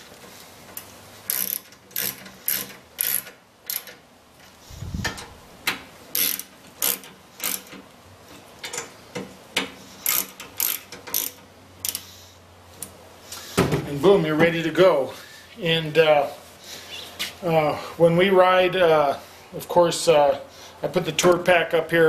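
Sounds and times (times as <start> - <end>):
socket wrench ratcheting: 1.3 - 4.0, 6.1 - 7.8, 10.0 - 12.1.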